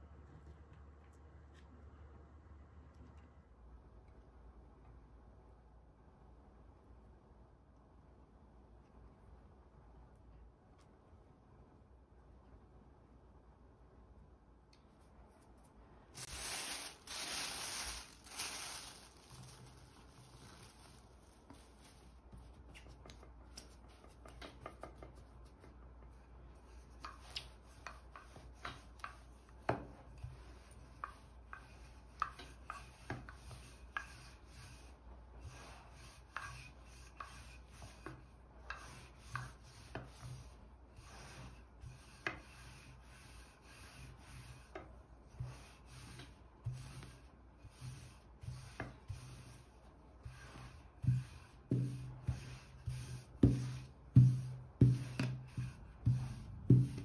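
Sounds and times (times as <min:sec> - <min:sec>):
plastic bag rustling: 0:16.2 - 0:22.2
rolling pin rolling dough: 0:16.2 - 0:57.0
light knocks of rolling pin: 0:51.0 - 0:57.0.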